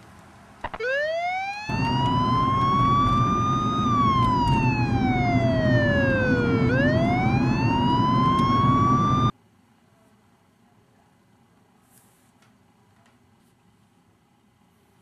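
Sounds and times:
police siren wailing: 0.7 - 9.3.

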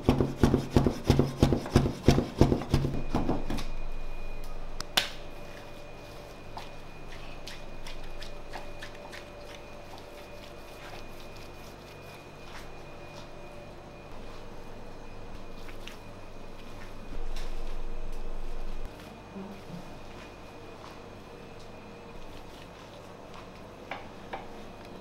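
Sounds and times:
knife chopping meat on board: 0.0 - 3.0
low steady hum: 0.0 - 25.0.

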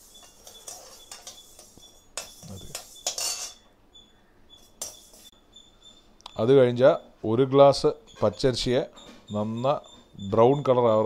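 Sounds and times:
metal spatula scraping pan: 0.0 - 3.7, 4.6 - 5.3.

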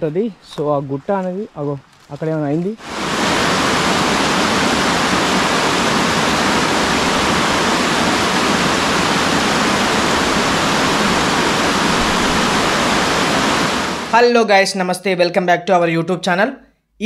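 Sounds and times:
waterfall rushing: 2.8 - 14.2.

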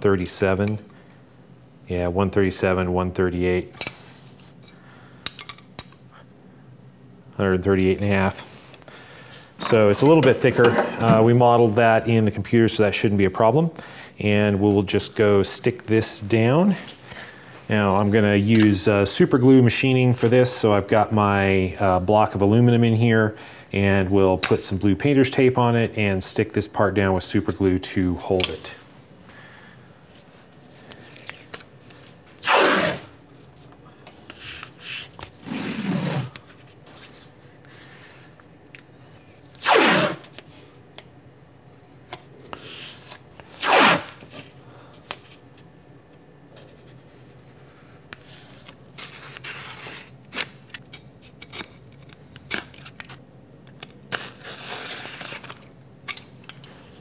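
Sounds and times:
tape rubbing and crinkling: 30.2 - 38.4, 42.0 - 44.6, 46.6 - 53.2, 53.8 - 57.0
tape ripping off roll: 32.3 - 33.1, 39.5 - 40.3, 42.7 - 44.4, 54.1 - 55.7.

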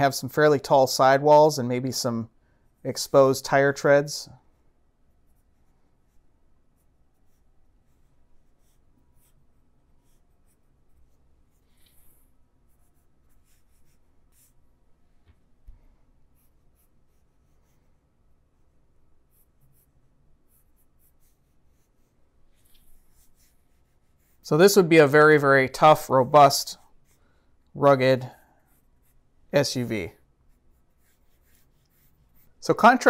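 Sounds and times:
pencil scratching sketch lines: 4.5 - 14.7, 16.2 - 24.8, 25.8 - 33.0.

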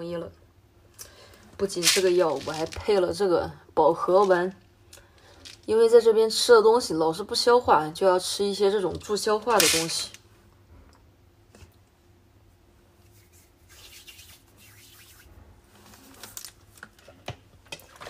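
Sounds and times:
hands rubbing rustling: 13.0 - 15.3.

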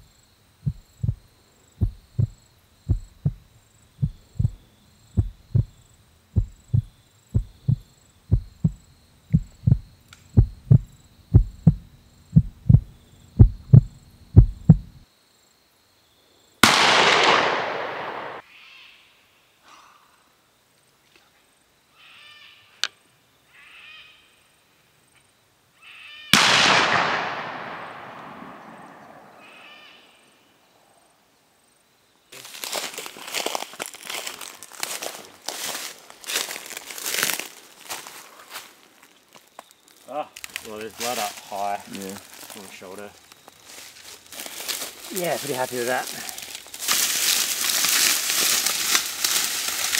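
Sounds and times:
thudding heartbeat: 0.6 - 5.8, 6.4 - 15.0
rifle shots echoing: 16.6 - 18.4, 26.4 - 29.4
footsteps crunching through leaves: 32.4 - 49.9.

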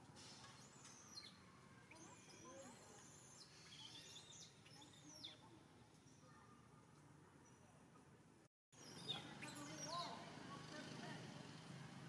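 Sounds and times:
baby monkey squeaking: 0.6 - 5.4.

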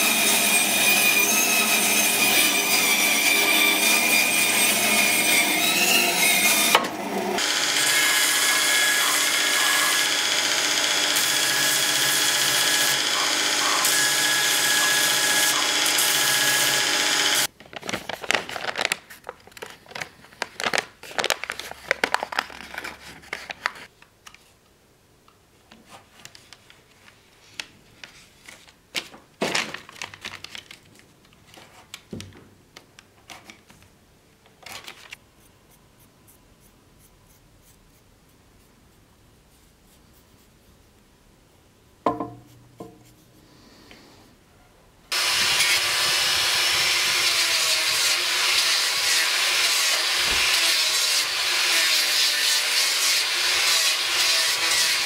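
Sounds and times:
bandsaw cutting wood: 0.0 - 17.5, 45.1 - 55.0
power tool running: 0.0 - 17.5, 45.1 - 55.0
rustles and scrapes on paper: 17.7 - 24.6, 34.7 - 40.9, 43.0 - 43.5.

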